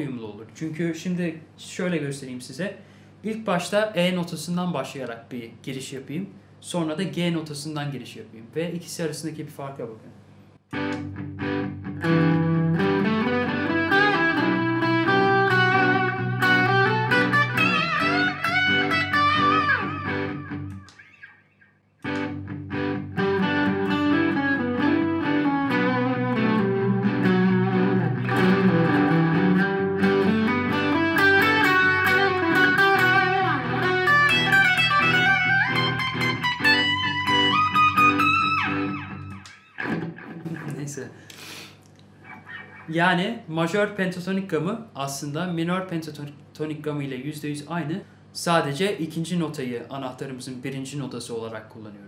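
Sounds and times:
electric guitar lead phrases: 10.7s - 41.2s.

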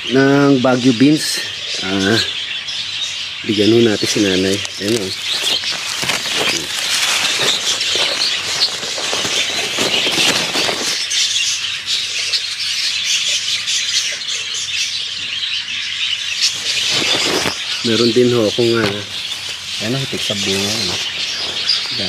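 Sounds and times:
rustling of wet foliage: 3.4s - 13.7s, 16.3s - 22.0s
high background hiss: 16.4s - 22.0s.

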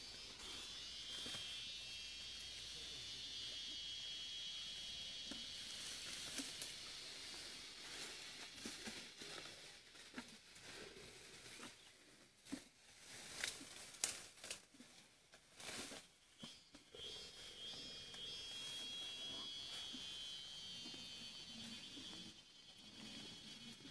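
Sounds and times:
elephants rustling in bamboo: 5.7s - 16.5s
stems snapping and leaves tearing: 13.4s - 14.6s.

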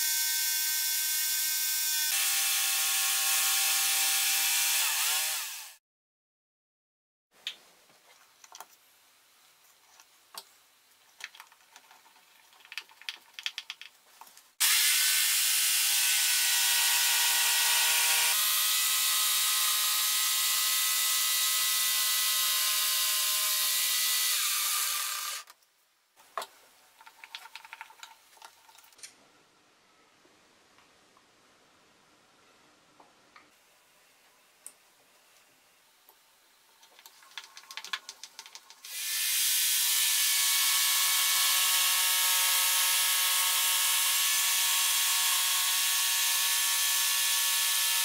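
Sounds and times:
electric jigsaw cutting wood: 0.0s - 5.8s, 14.6s - 25.5s, 38.8s - 48.0s.

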